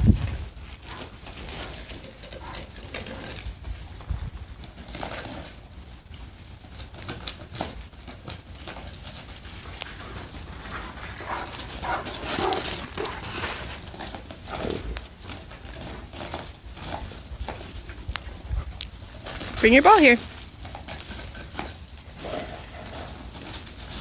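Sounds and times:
paws crunching on icy snow: 0.0 - 24.0.

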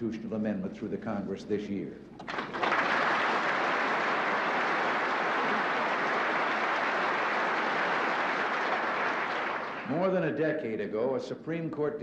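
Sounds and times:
large audience applauding: 2.2 - 10.0.

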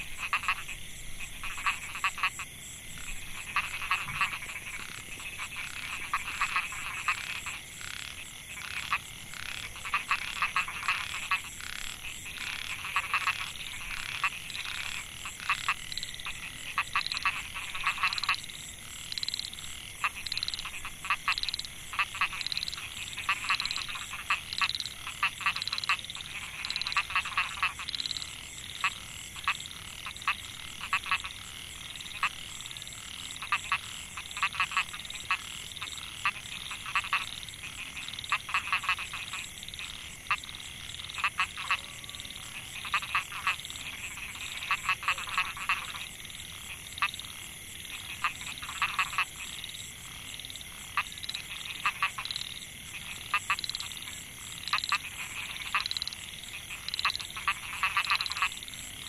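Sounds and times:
frogs calling in chorus: 0.0 - 59.0.

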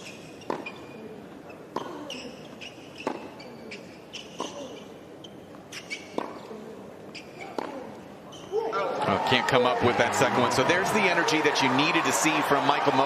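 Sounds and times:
shoes squeaking on court: 0.0 - 9.0
ball bouncing: 0.4 - 0.9, 3.0 - 3.4, 6.1 - 6.5, 7.4 - 7.8
racket striking ball: 3.0 - 3.4, 4.3 - 4.7, 6.1 - 6.5, 7.4 - 7.9.

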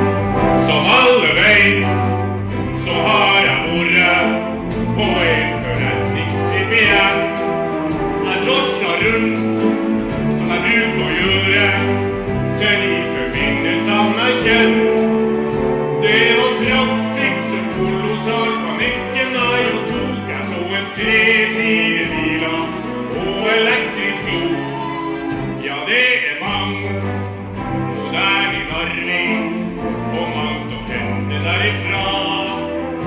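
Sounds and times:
instrumental accompaniment: 0.0 - 33.0
person singing: 16.0 - 27.3.

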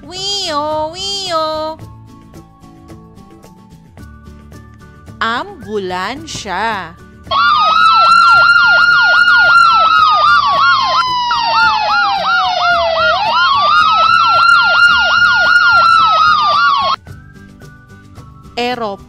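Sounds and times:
ambulance siren: 7.3 - 17.0.

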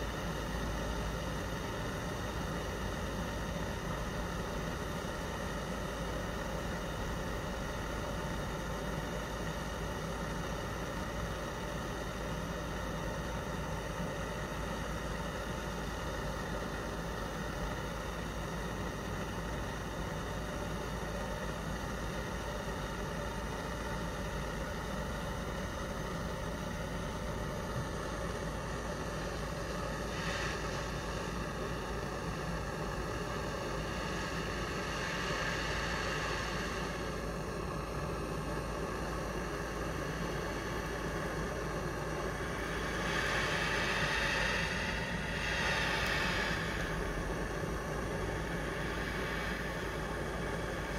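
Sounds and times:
gas torch flame hissing: 23.9 - 50.9.

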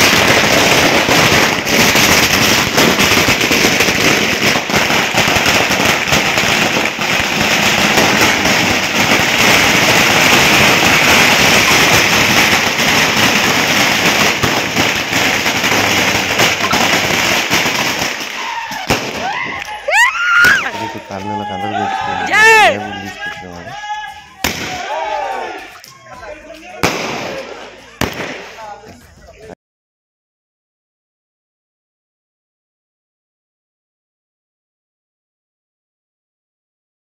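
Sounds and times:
firework fountain hissing and crackling: 0.0 - 29.6.

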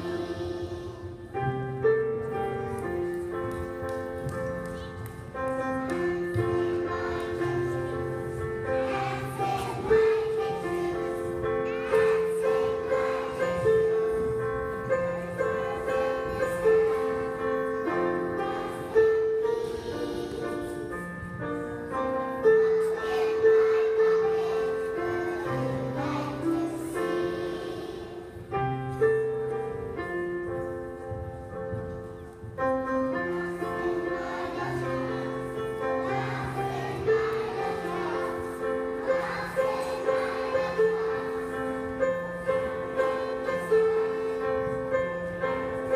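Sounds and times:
children singing together: 0.0 - 1.4, 5.8 - 21.1, 22.2 - 28.5, 33.4 - 45.9.

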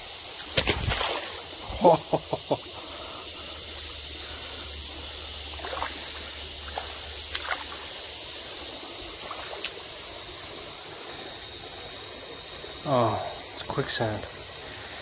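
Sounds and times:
shallow stream running: 0.0 - 15.0
feet splashing in water: 0.4 - 1.4, 5.6 - 7.8, 9.2 - 9.8.

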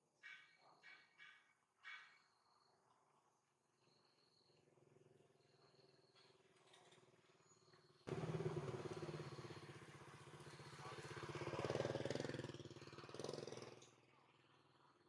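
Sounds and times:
small engine running: 8.0 - 15.0.

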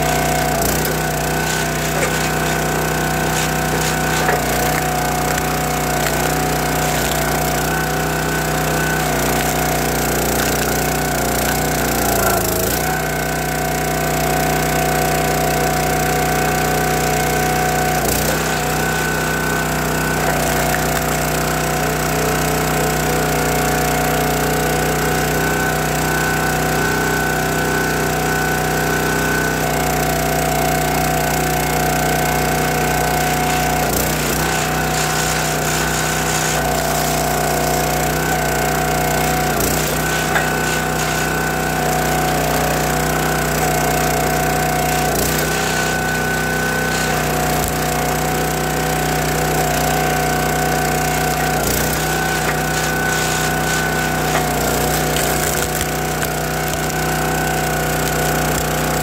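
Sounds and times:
small engine and hydraulic pump: 0.0 - 59.0
wood cracking: 0.1 - 12.8, 51.2 - 56.9.

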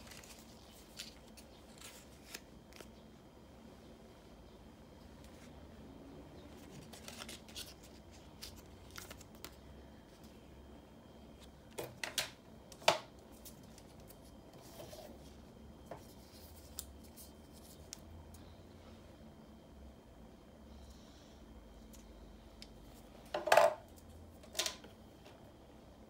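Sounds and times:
plastic packaging rustling: 0.0 - 2.9.

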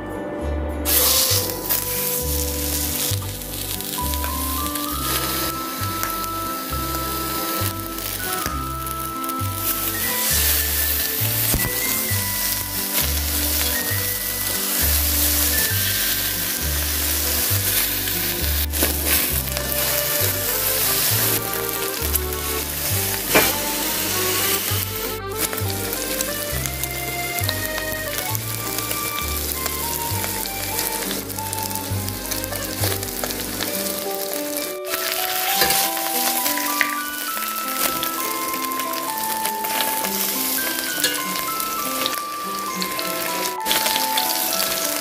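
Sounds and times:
music with pulsing bass: 0.0 - 34.0
pork sizzling in a pan: 0.9 - 45.0.

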